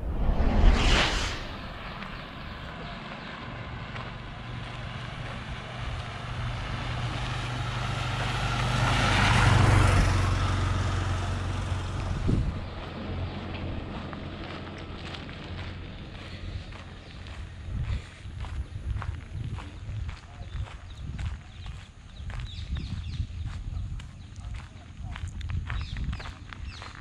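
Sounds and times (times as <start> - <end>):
loud whoosh: 0.0 - 2.9
auto-rickshaw engine passing: 2.6 - 17.7.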